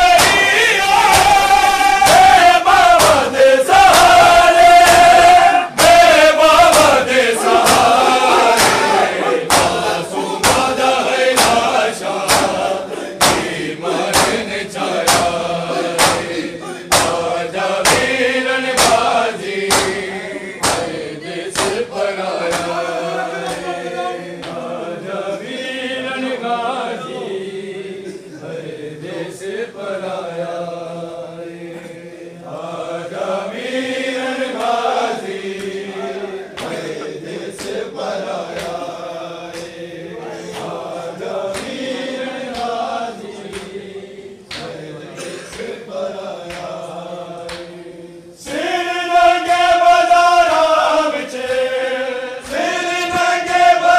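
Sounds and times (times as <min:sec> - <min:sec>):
rhythmic chest slaps: 0:00.0 - 0:26.0, 0:29.5 - 0:53.9
men chanting together: 0:00.0 - 0:53.9.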